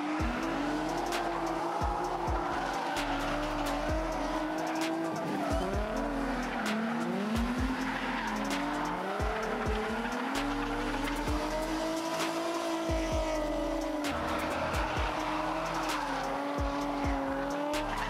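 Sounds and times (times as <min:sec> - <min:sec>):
engines revving: 0:00.0 - 0:18.0
tyres squealing: 0:00.3 - 0:18.0
sharp cracks: 0:07.8 - 0:09.1.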